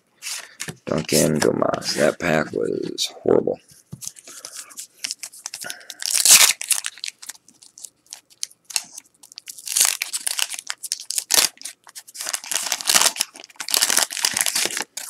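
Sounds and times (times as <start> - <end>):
wax paper wrapper tearing: 5.5 - 15.0.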